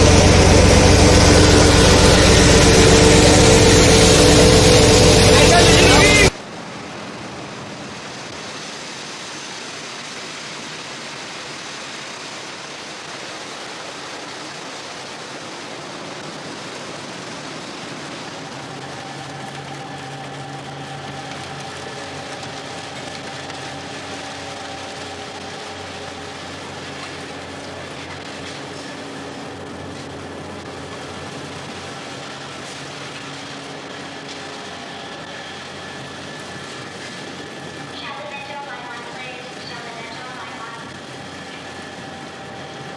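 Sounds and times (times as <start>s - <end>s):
fish-processing machinery running: 0.0s - 6.3s, 13.6s - 42.9s
faint hum: 15.7s - 42.9s.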